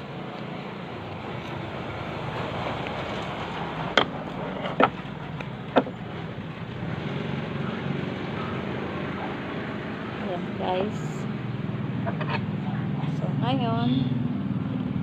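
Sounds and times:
steady background rumble: 0.0s - 15.0s.

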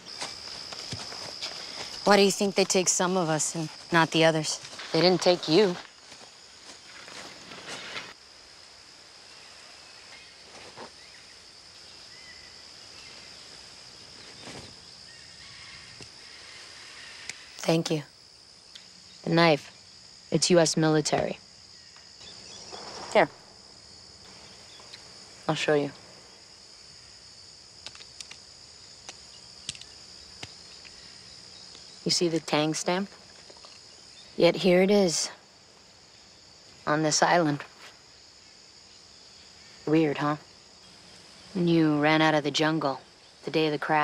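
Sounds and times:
grass and clothing rustling: 0.0s - 18.0s, 18.7s - 42.5s
insects trilling: 0.0s - 44.0s.

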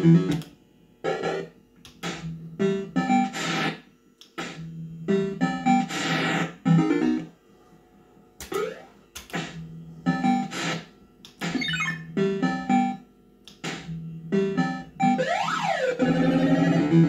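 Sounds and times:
fruit machine jingles and beeps: 11.6s - 12.1s.

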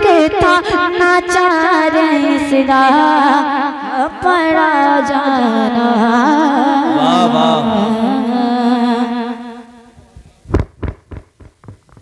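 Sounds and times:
boy singing long wavering note: 0.0s - 9.8s
loud thumps: 10.0s - 12.0s.

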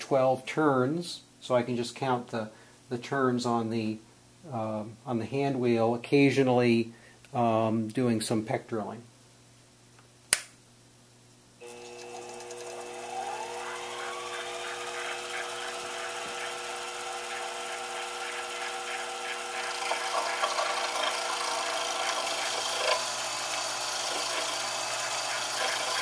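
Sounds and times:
switch click: 10.3s - 10.6s
drill scraping: 11.6s - 26.0s
lathe motor whine: 11.6s - 26.0s.

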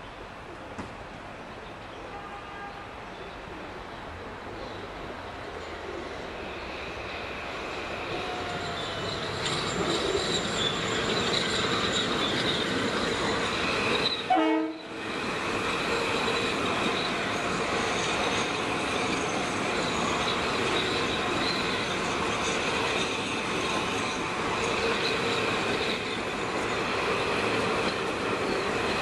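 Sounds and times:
train wheels rushing on rail: 4.8s - 29.0s
wheel squeal: 7.8s - 14.3s.

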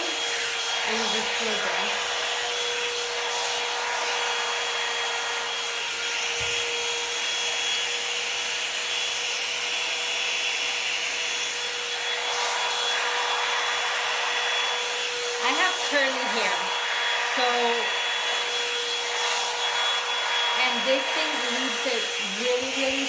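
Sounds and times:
brush drawn through hair: 0.0s - 7.7s, 11.3s - 23.0s
hot-air brush dryer humming: 0.0s - 23.0s.

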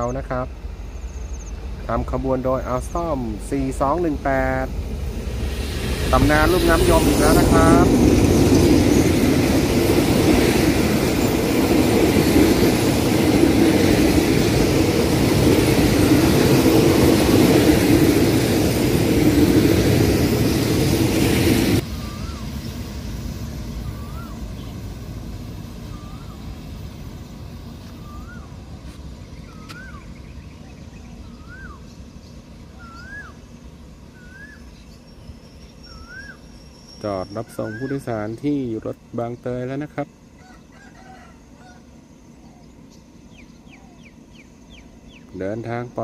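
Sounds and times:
train wheels rumbling on rails: 0.0s - 30.3s
bird calling short rising note: 21.8s - 22.9s, 23.6s - 25.0s, 25.6s - 26.7s, 27.9s - 28.8s, 29.4s - 32.0s, 32.7s - 34.9s, 35.8s - 38.1s.

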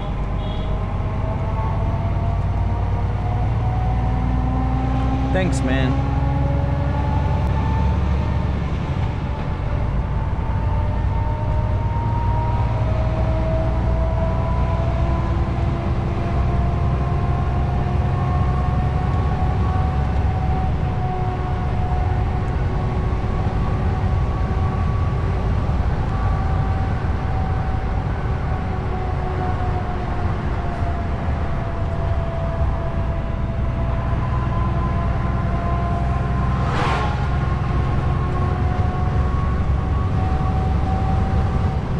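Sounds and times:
diesel engine drone: 0.0s - 41.9s
tyre and road noise: 0.0s - 41.9s
thin drifting tone: 35.9s - 38.7s.

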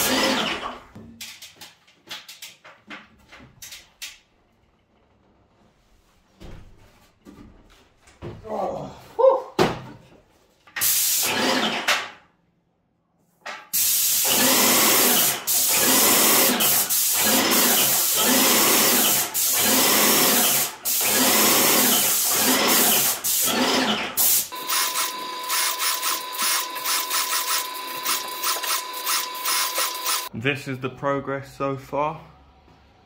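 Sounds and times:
paint sprayer hissing: 13.7s - 23.5s, 24.2s - 30.3s.

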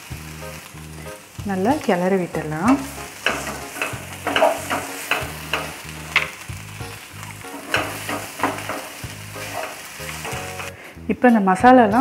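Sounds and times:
light sizzle: 0.0s - 12.0s
spatula scraping frying pan: 2.5s - 6.5s, 7.2s - 10.8s.

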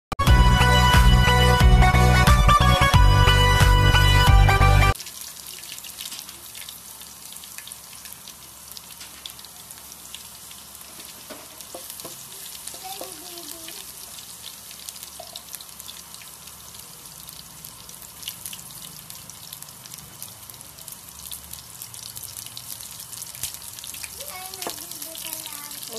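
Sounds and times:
garlic sizzling in hot oil: 5.0s - 25.9s.

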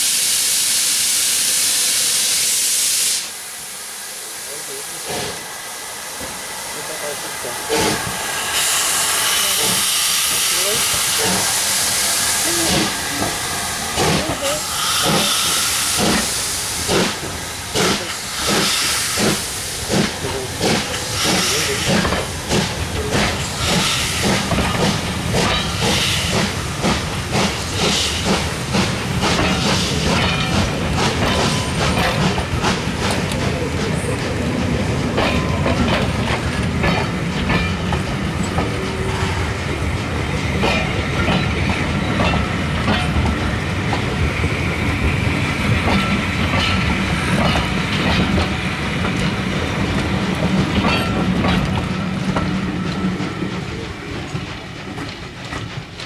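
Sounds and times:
loud hiss of steam: 0.0s - 33.9s
steam locomotive exhaust beats: 6.1s - 56.0s
train wheel clicks: 7.7s - 11.6s, 12.4s - 34.4s, 45.7s - 56.0s.

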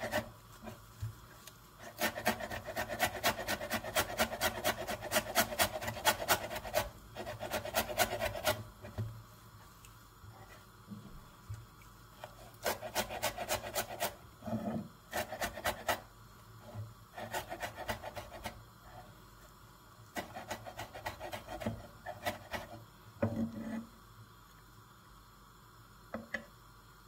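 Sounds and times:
knife scraping board: 0.0s - 0.8s, 1.8s - 9.0s, 12.2s - 19.1s, 20.1s - 23.9s.

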